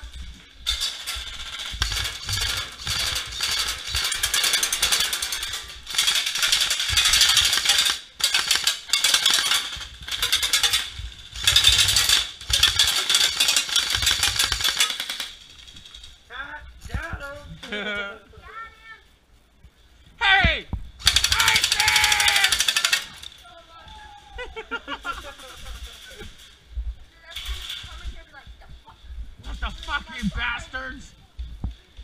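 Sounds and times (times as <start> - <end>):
airsoft rifle full-auto bursts: 5.9 - 15.4, 21.0 - 23.2.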